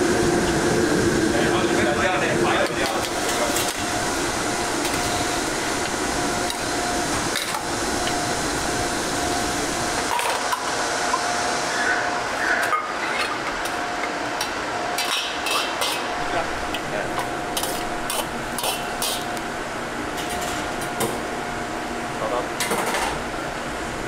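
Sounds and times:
broth boiling: 0.0 - 24.0
gas burner hissing: 0.0 - 24.0.

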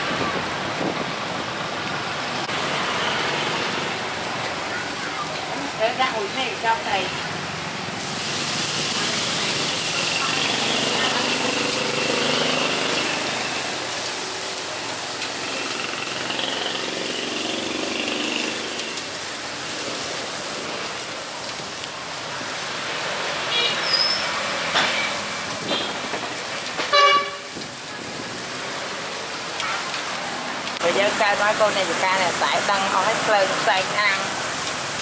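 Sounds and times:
grill sizzling: 0.6 - 35.0
short loud horn blast: 26.9 - 27.5.

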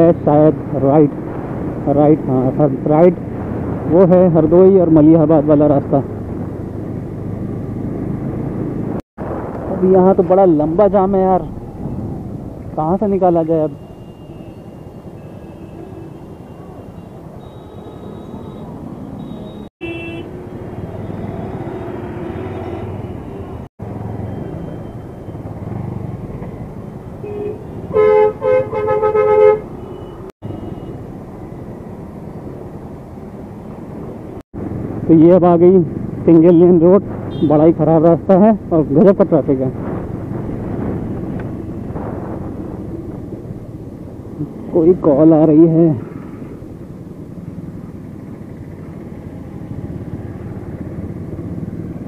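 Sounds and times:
engines rumbling in traffic: 0.0 - 52.0
vehicle horn honking: 13.8 - 20.4, 27.2 - 31.0, 37.3 - 37.6.

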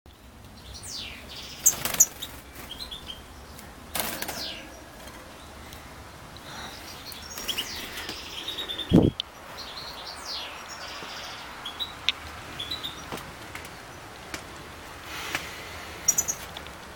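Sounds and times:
goldfinch calling and twittering: 0.6 - 5.9, 6.5 - 12.0, 16.0 - 16.5.

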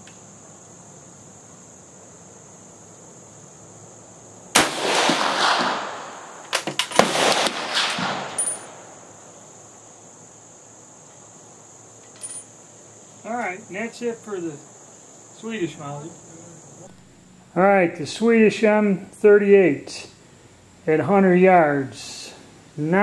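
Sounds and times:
crickets chirring: 0.0 - 23.0
rifle shot: 4.5 - 9.0.

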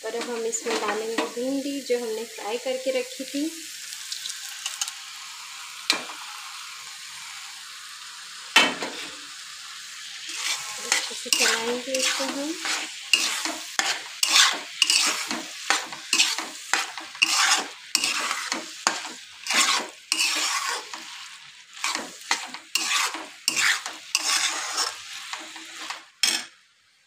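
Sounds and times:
frying sizzle: 0.0 - 27.0
spatula scraping metal pan: 0.1 - 1.5, 10.3 - 26.5.

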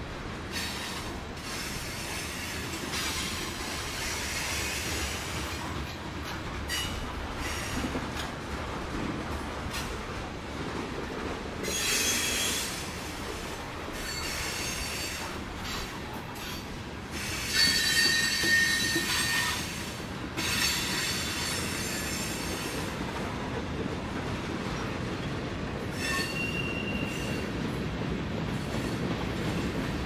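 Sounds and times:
freight cars rolling on rails: 0.0 - 30.0
wheels squealing: 17.2 - 19.8.

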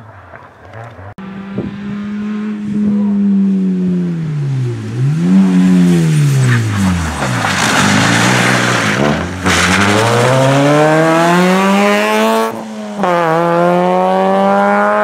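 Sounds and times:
rally car engine revving: 0.6 - 15.0
tyres hissing on wet road: 5.6 - 10.0.

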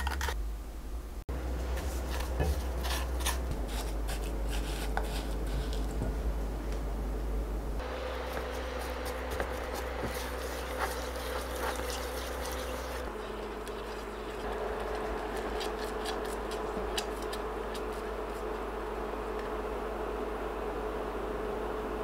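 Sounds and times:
spatula stirring jam: 1.6 - 6.0, 8.0 - 18.6
electric cooktop buzz: 7.8 - 22.0.

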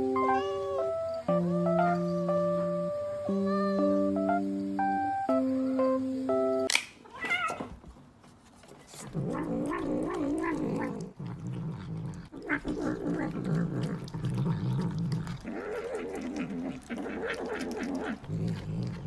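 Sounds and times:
cat meowing: 0.0 - 1.0, 7.1 - 7.8
cat low wavering vocal sound: 0.0 - 4.2, 9.1 - 19.0.

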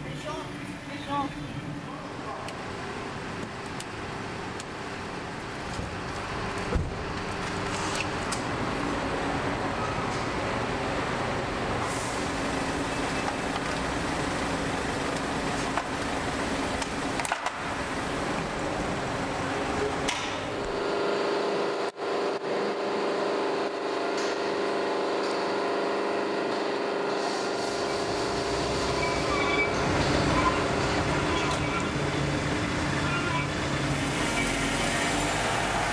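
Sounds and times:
vehicle engine running: 2.5 - 21.2.

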